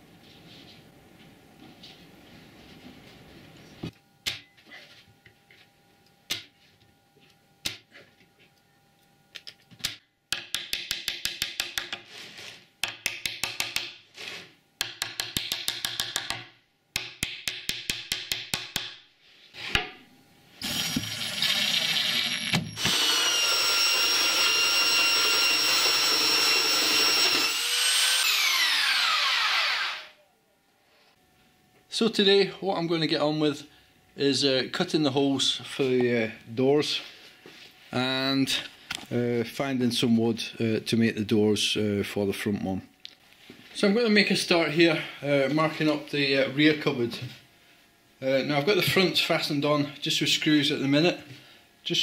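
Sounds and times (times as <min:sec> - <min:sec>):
power tool whining: 0:20.6 - 0:30.2.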